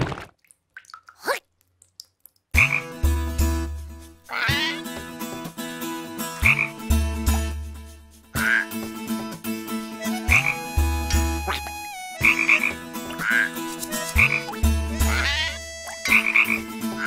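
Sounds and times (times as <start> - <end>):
cartoon frog croaking: 4.3 - 4.8, 8.4 - 8.7, 10.3 - 10.6, 11.4 - 17.0.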